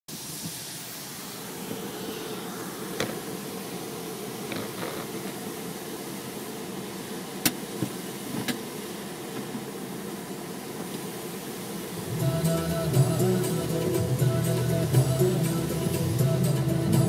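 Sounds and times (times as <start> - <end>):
outdoor background noise: 0.1 - 17.0
music: 12.0 - 17.0.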